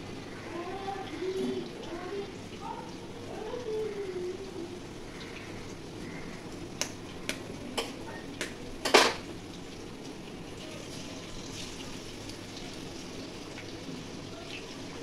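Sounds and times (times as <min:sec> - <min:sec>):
vegetables sizzling in wok: 0:00.0 - 0:15.0
eggs cracking on wok rim: 0:06.8 - 0:09.2.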